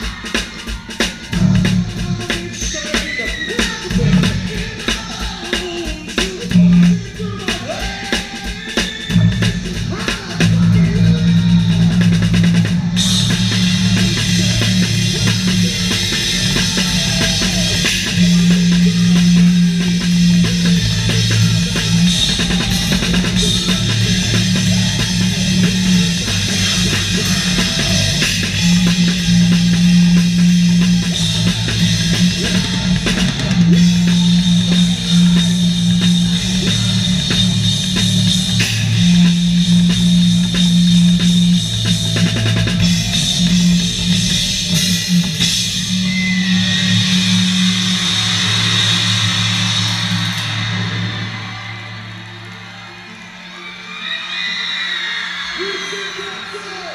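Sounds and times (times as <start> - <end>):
drum hits: 0.0 - 53.0
live rock band playing: 0.0 - 53.4
cymbals ringing: 11.9 - 53.8.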